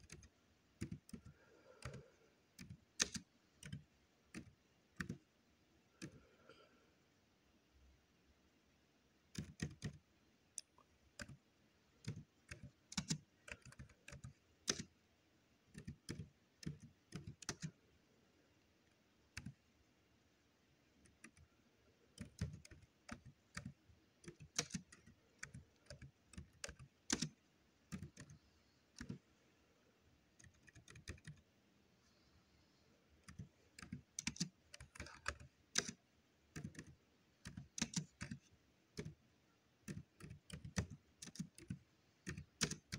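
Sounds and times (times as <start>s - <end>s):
computer keyboard typing: 0.0s - 5.3s, 5.9s - 6.6s, 9.3s - 15.0s, 15.6s - 17.8s, 19.2s - 19.7s, 21.0s - 29.3s, 30.3s - 31.5s, 33.2s - 42.9s.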